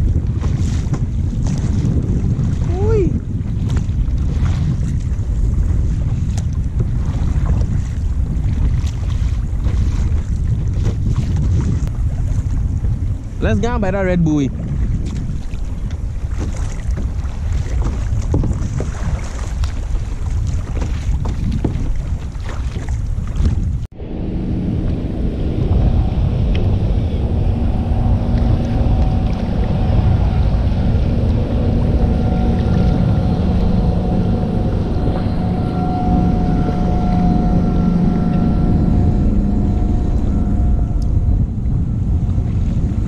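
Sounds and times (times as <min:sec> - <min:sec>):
paddle splashing in water: 0:00.0 - 0:13.2, 0:14.5 - 0:24.0
wind buffeting microphone: 0:00.0 - 0:43.0
motor drone: 0:23.9 - 0:43.0.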